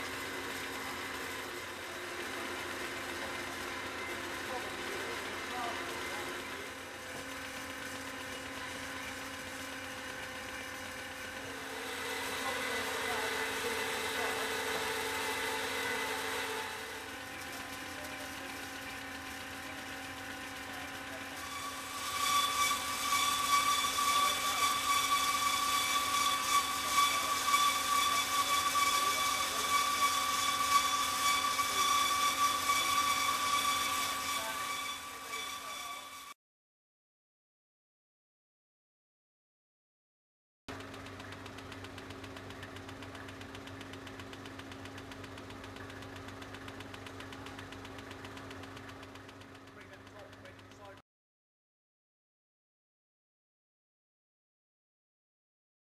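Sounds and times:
bandsaw cutting steel: 0.0 - 36.4
high mechanical whine: 0.0 - 36.4.

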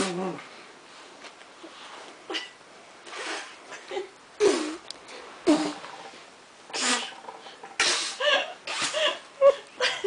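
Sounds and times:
child making mouth fart noises: 3.1 - 3.6, 4.4 - 6.1, 6.7 - 9.0.

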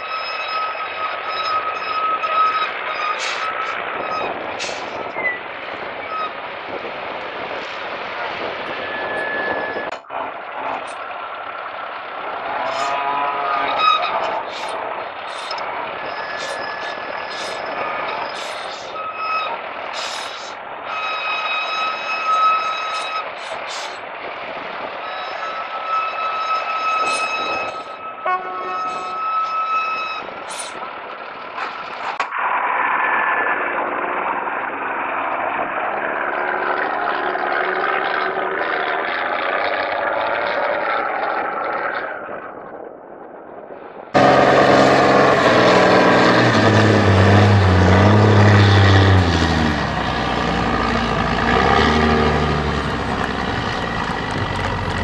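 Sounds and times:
off-road truck running: 0.0 - 55.0
high-pitched whine: 44.2 - 55.0.

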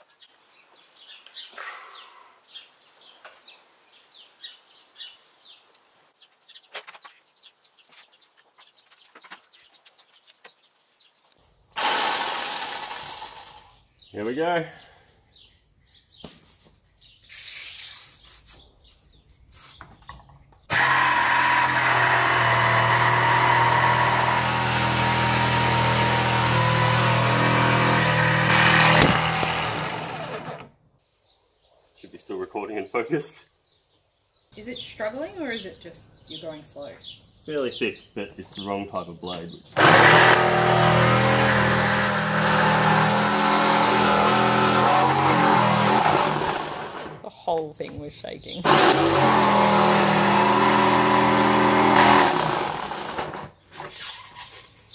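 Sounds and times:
jigsaw sawing through wood: 11.8 - 13.7, 20.7 - 30.7, 39.8 - 47.2, 48.6 - 54.0.

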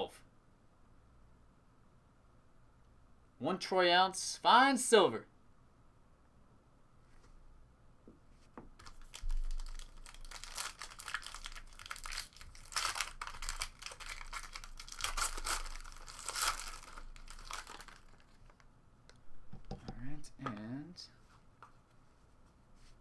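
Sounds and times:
foil wrapper tearing and crinkling: 8.8 - 18.6.

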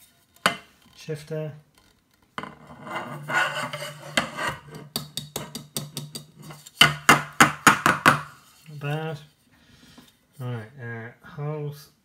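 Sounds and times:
handlebar scraping: 1.8 - 4.9.

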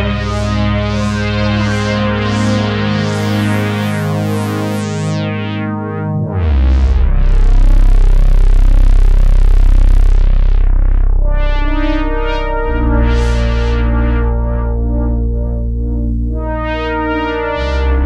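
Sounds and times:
synthesizer chords: 0.0 - 18.0
deep bass note: 6.1 - 18.0.

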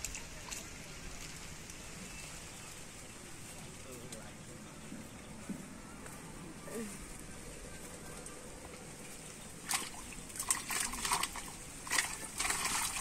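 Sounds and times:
water splashing in a plastic basin: 0.0 - 1.9, 9.6 - 13.0.

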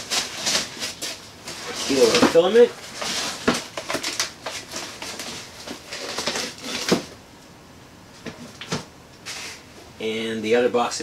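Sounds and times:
foam and cardboard rustling: 0.0 - 7.2.

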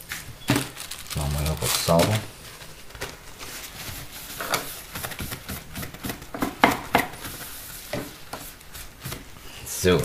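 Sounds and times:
cloth rustling and rubbing: 0.8 - 5.7.

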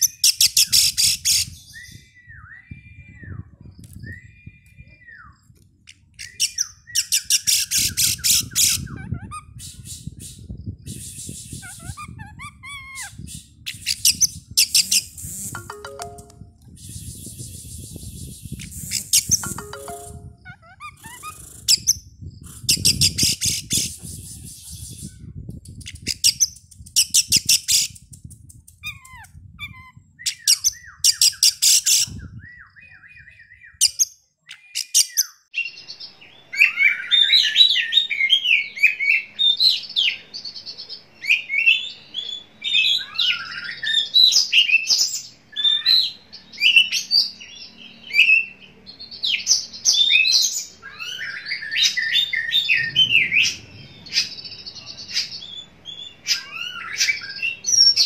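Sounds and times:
songbird whistling and chattering: 16.8 - 22.0, 49.4 - 58.0.

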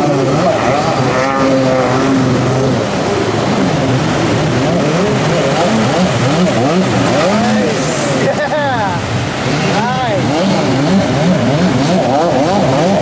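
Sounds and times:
jet ski engines revving: 0.0 - 13.0
surf breaking: 0.0 - 13.0.

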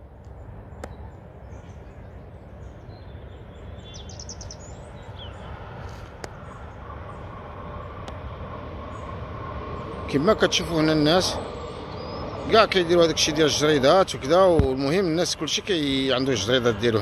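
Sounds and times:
low rumble: 4.6 - 17.0.

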